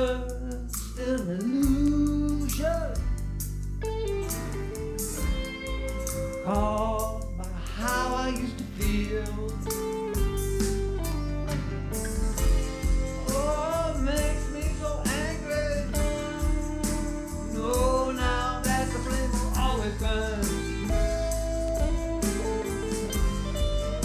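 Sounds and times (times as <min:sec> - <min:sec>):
backing track with drums and bass: 0:00.0 - 0:24.0
electric guitar lead with bends: 0:03.8 - 0:08.3, 0:09.6 - 0:24.0.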